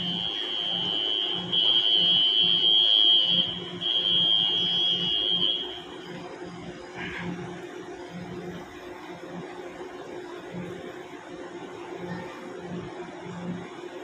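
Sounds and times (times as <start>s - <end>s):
high-pitched warning buzzer: 0.0s - 6.2s.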